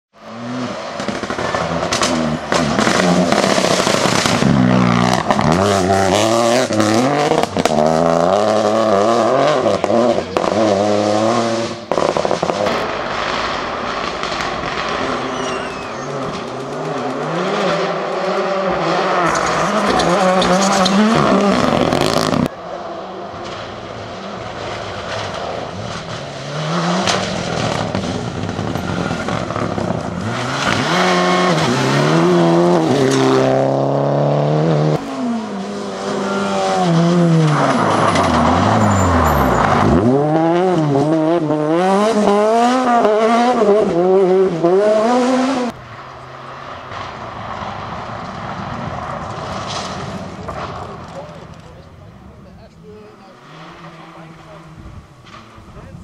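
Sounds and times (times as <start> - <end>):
rally car engines revving: 0.2 - 56.0
sharp exhaust cracks: 11.9 - 17.2.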